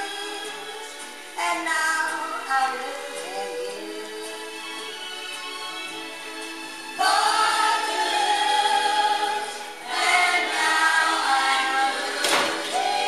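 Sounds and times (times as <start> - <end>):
choral singing from a record: 0.0 - 4.6, 7.0 - 13.0.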